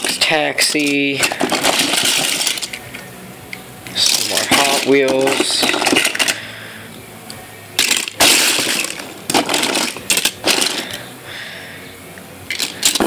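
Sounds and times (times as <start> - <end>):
toy cars clinking and clattering: 0.0 - 6.6, 7.8 - 11.1, 12.5 - 13.0.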